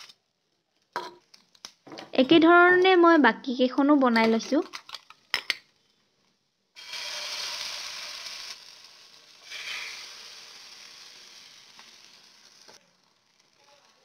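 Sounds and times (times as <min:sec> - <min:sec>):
egg sizzling in hot oil: 0:06.8 - 0:14.0.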